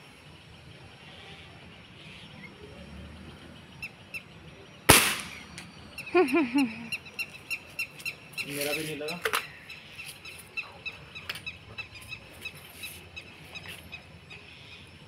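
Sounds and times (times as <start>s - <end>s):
air rifle shot crack: 4.9s - 5.6s.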